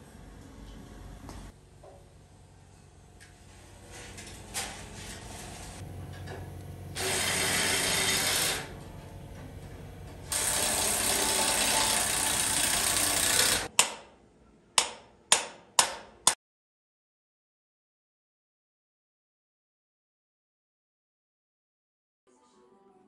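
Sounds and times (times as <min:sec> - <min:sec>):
steady mechanical tool noise: 0:03.5 - 0:14.0.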